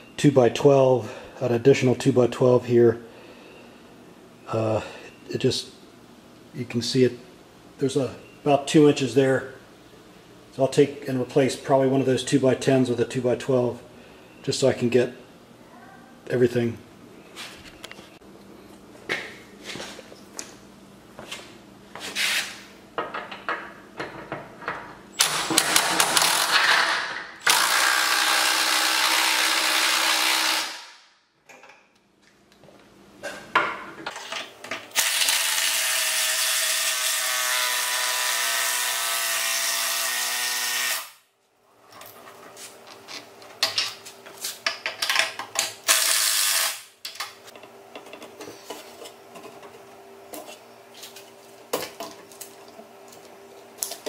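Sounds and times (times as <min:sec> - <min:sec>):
tools and boards clattering: 0:23.0 - 0:27.3, 0:33.2 - 0:34.9, 0:41.9 - 0:45.8
cordless drill running under load: 0:27.4 - 0:30.9, 0:35.0 - 0:37.1.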